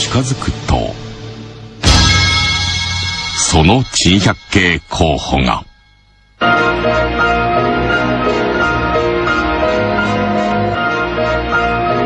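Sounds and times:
sustained keyboard music: 3.2 - 12.0.

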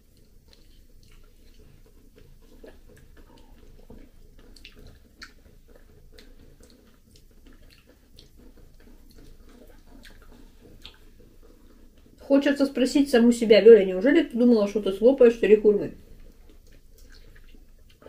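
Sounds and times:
wet chewing: 0.0 - 18.0
mouth clicks and lip smacks: 0.1 - 12.2, 16.2 - 18.0.

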